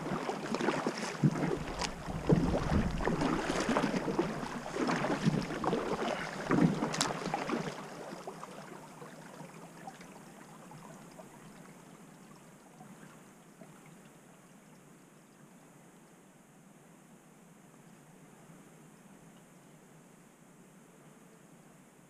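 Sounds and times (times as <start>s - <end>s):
paddle strokes splashing and dripping: 0.0s - 13.9s
faint hiss of gliding kayak: 0.2s - 12.0s.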